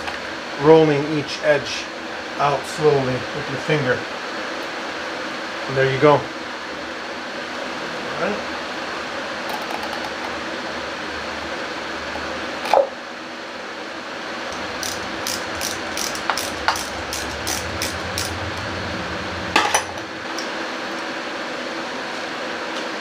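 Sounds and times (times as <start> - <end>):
fan hum: 0.0 - 23.0
tools clicking and tapping: 14.8 - 18.4.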